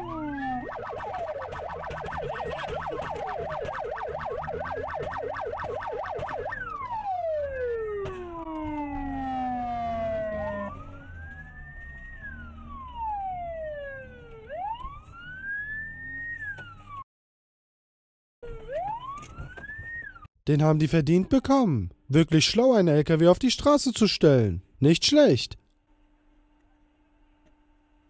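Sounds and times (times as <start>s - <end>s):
police sirens yelping and wailing: 0.0s - 17.0s, 18.4s - 20.3s
road and engine rumble: 0.0s - 17.0s.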